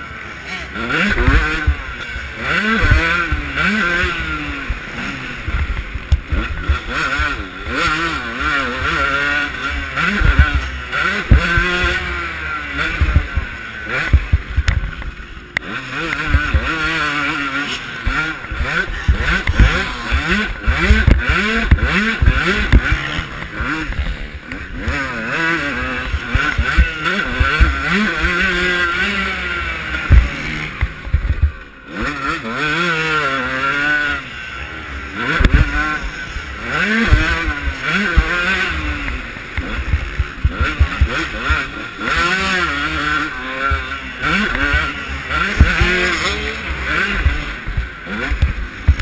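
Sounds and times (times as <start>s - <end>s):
motocross engine revving: 0.0s - 49.0s.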